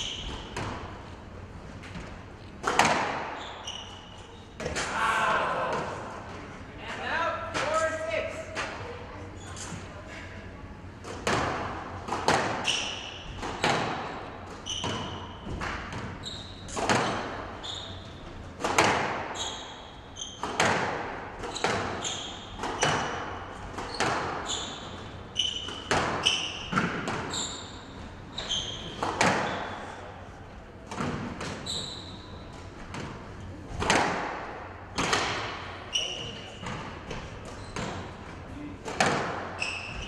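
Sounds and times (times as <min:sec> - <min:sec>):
shoes squeaking on court floor: 0:00.0 - 0:05.0, 0:09.3 - 0:10.0, 0:12.3 - 0:30.1, 0:31.0 - 0:33.5, 0:34.9 - 0:40.0
squash ball cracking off rackets: 0:02.6 - 0:03.4.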